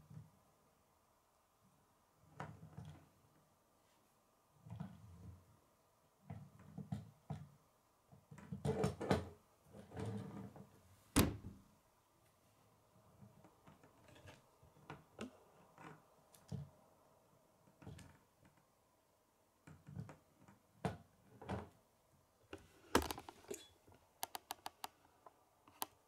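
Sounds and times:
plastic model clicks and knocks: 23.0s - 23.4s, 24.2s - 25.0s
sharp clicks: 24.2s - 25.0s.

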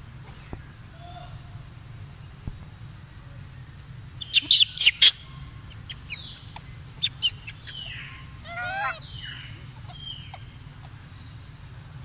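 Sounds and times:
high-pitched animal squeaks: 4.2s - 5.1s, 7.0s - 9.0s
wavering animal squeal: 8.4s - 9.0s.

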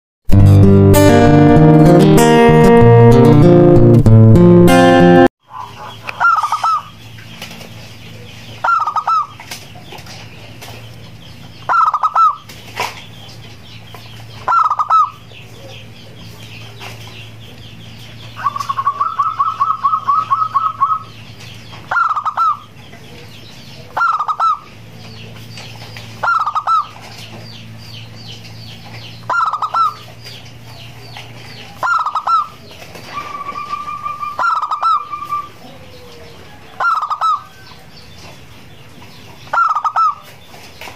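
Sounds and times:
dove cooing: 5.5s - 6.9s, 8.2s - 9.4s, 14.4s - 17.0s, 18.3s - 21.2s, 21.8s - 24.9s, 26.2s - 27.2s, 29.3s - 37.6s, 39.4s - 40.3s.

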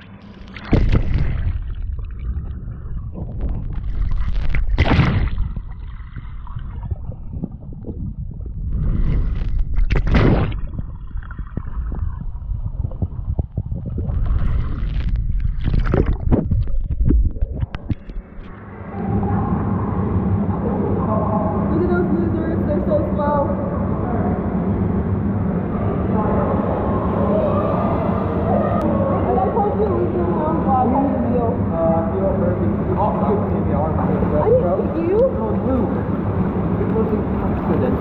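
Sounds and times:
water sloshing: 0.0s - 18.6s
muffled underwater rumble: 0.0s - 38.0s.

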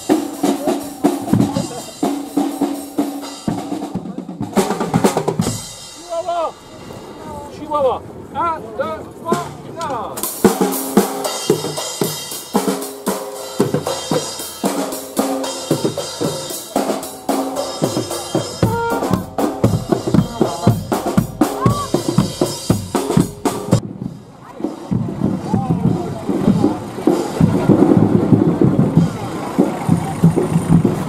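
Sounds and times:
snare and bass drums: 0.0s - 7.2s, 9.3s - 31.0s
brass horns holding notes: 10.5s - 23.8s.

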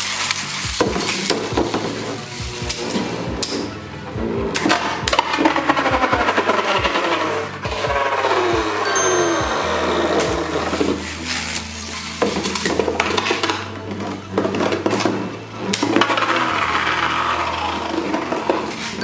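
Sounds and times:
spinning tops whirring and rattling: 0.0s - 3.8s.

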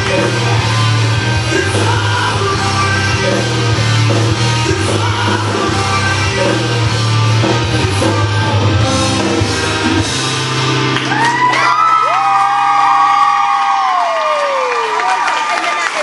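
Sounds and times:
rock music with singing: 0.0s - 12.2s
bass line: 0.0s - 14.0s
audience whooping: 10.8s - 16.0s.

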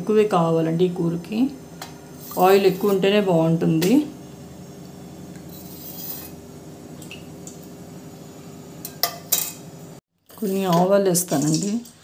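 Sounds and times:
kitchen utensils clinking: 8.8s - 9.7s.

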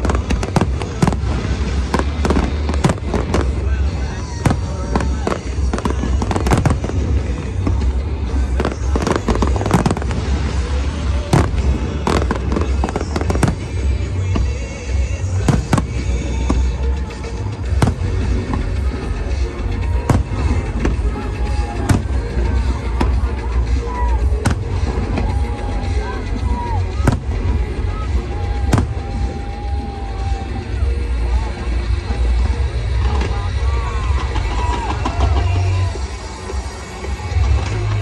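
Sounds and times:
fireworks bangs and crackles: 0.0s - 38.0s
music playing: 0.0s - 38.0s
steady low rumble: 0.0s - 38.0s.

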